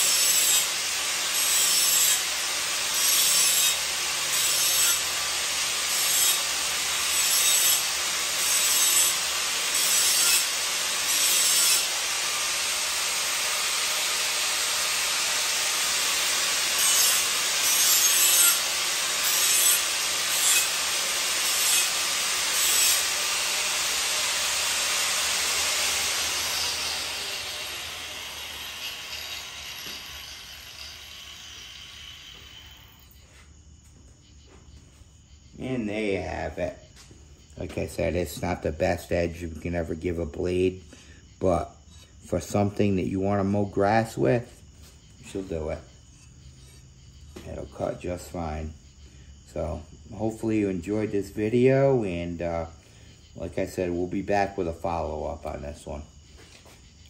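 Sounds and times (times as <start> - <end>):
angle grinder grinding steel: 0.0 - 33.4, 41.5 - 48.4.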